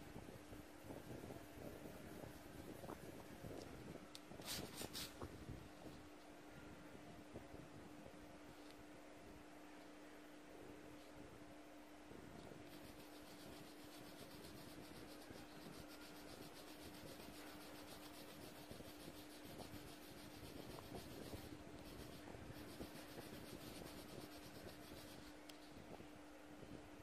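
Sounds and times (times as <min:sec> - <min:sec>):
pen scratching on paper: 0:12.7 - 0:25.4.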